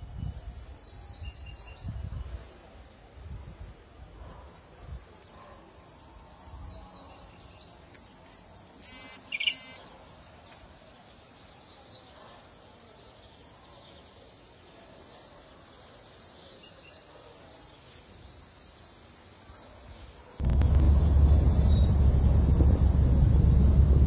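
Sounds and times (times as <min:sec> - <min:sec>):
harsh buzzing: 0:08.8 - 0:09.8
birds chirping: 0:08.8 - 0:10.0.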